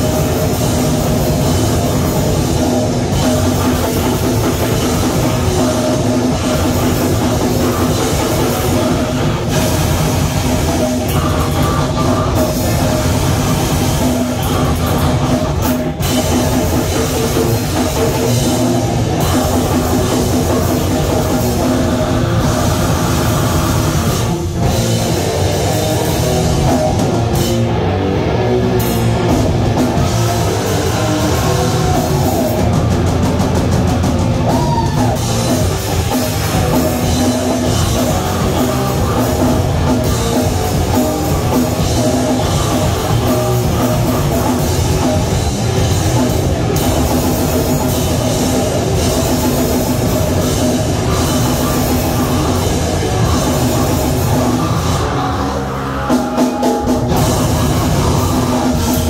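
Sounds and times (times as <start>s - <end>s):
guitar: 0.0s - 59.0s
live rock band: 0.0s - 59.0s
pounding drum kit: 0.0s - 59.0s.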